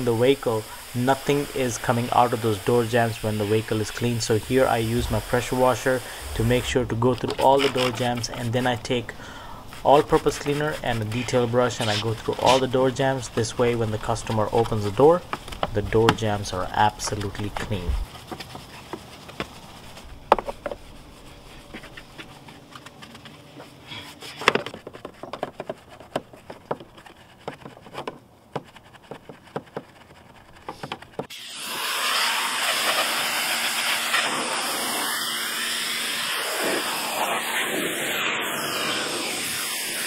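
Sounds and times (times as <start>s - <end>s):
brush scrubbing car door: 0.0s - 9.1s, 9.7s - 31.3s
pressure washer water jet hissing: 0.0s - 16.2s, 31.3s - 40.0s.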